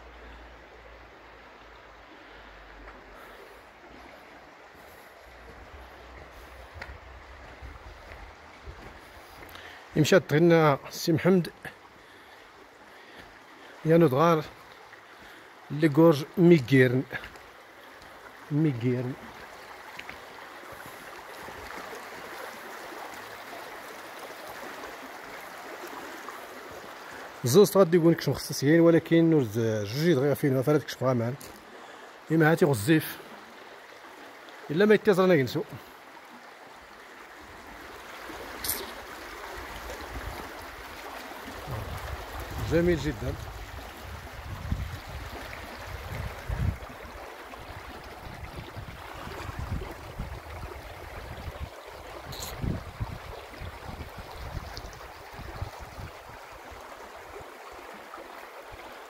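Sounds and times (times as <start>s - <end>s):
stream running over stones: 0.0s - 59.0s
wind buffeting microphone: 41.6s - 47.0s, 47.7s - 56.3s.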